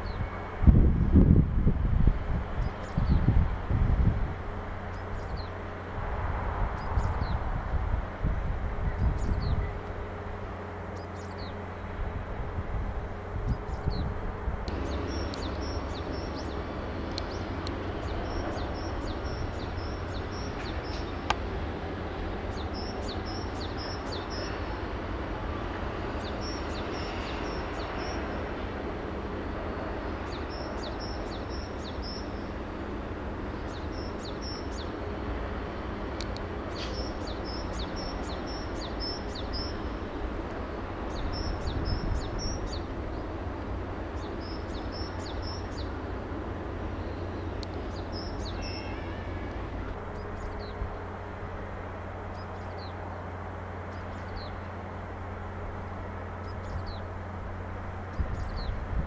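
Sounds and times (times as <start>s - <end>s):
steady low hum: 0.0s - 59.0s
small birds chirping: 14.7s - 21.4s, 29.8s - 32.6s, 33.5s - 35.0s, 36.2s - 40.1s, 44.1s - 46.1s, 46.9s - 50.8s.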